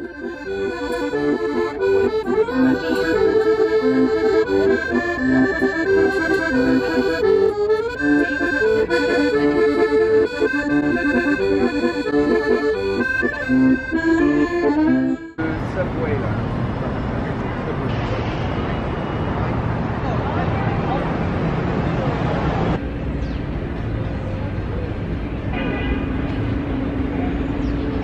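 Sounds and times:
piano accordion melody: 0:00.0 - 0:15.4.

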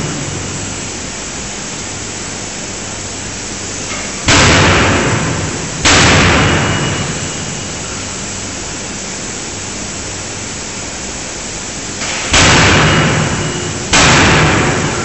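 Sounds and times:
loud machinery noise: 0:00.0 - 0:15.0
forging hammer crashing on steel: 0:12.0 - 0:15.0.

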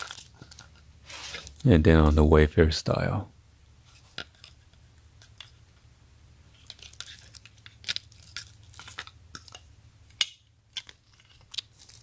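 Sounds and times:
plastic wrap crinkling: 0:00.0 - 0:01.7, 0:06.6 - 0:09.6, 0:10.7 - 0:12.0.

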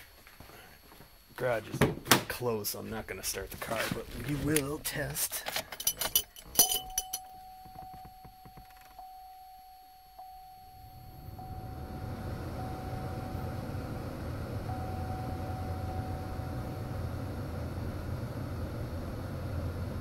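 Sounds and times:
thin steady tone: 0:05.7 - 0:17.2
car blower fan blowing air: 0:10.7 - 0:20.0.

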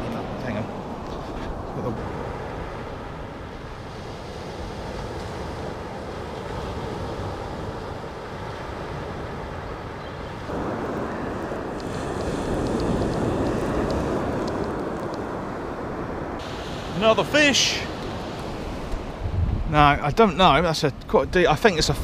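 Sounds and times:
wind on microphone: 0:00.0 - 0:17.2, 0:17.8 - 0:22.0
surf washing onto a beach: 0:00.0 - 0:21.0
faint ticks: 0:11.8 - 0:15.3.

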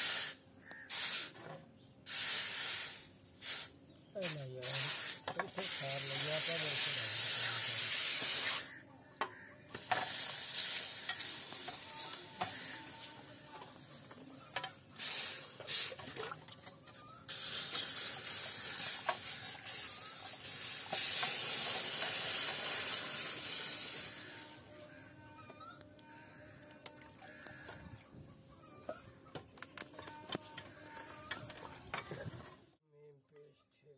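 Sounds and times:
hot blade hissing in water: 0:02.1 - 0:08.8, 0:09.8 - 0:13.0, 0:15.0 - 0:16.1, 0:17.3 - 0:24.6.

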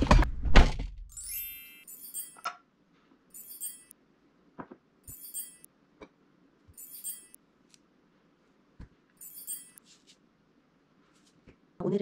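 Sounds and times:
soft high bell-like chimes: 0:01.1 - 0:02.4, 0:03.3 - 0:04.0, 0:05.1 - 0:05.7, 0:06.8 - 0:07.4, 0:09.2 - 0:09.8
twinkling falling chime effect: 0:01.1 - 0:02.5, 0:03.3 - 0:03.9, 0:05.1 - 0:05.7, 0:06.8 - 0:07.4, 0:09.2 - 0:09.8.

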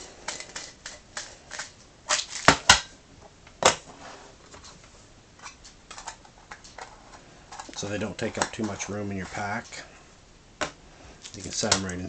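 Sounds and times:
metal tins clacking: 0:05.4 - 0:09.8.

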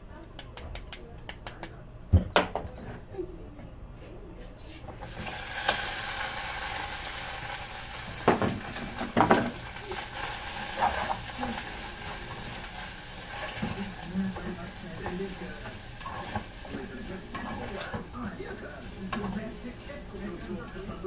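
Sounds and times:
sauce sizzling in a frying pan: 0:05.0 - 0:21.0.

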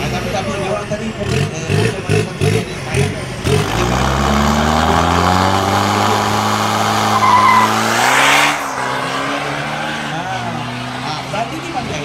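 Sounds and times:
diesel truck engine revving high: 0:00.0 - 0:12.0
loud rushing noise: 0:03.7 - 0:11.0.

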